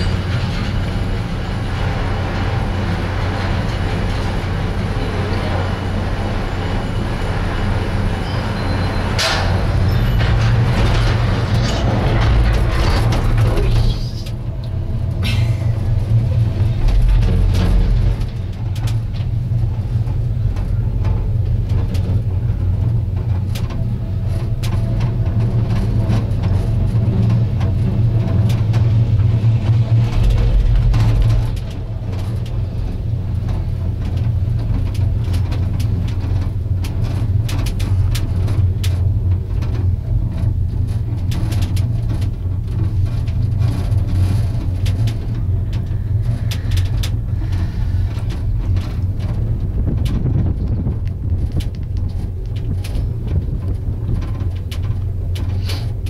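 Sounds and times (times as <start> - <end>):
gondola cabin low rumble: 0.0 - 56.0
cabin rattles and clicks: 29.8 - 56.0.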